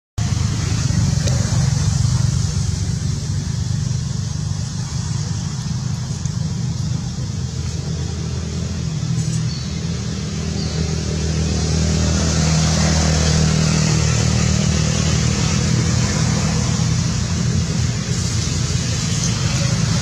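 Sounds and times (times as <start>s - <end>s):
vehicle engine rumbling: 0.2s - 20.0s.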